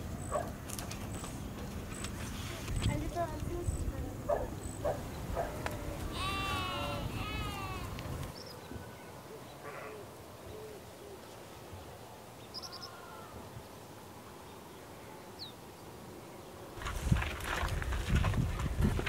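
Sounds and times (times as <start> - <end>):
distant bird calls: 0.0 - 16.8
farm animal bleating: 5.9 - 8.1.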